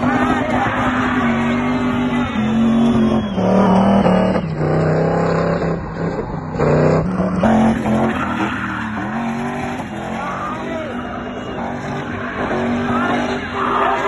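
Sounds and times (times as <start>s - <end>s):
car engine revving high: 0.0s - 14.0s
tyres squealing: 0.0s - 14.0s.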